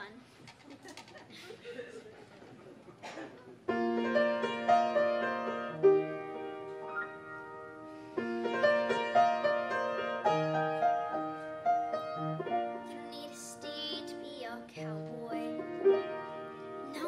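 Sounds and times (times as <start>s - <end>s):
piano chords and melody: 3.7s - 17.0s.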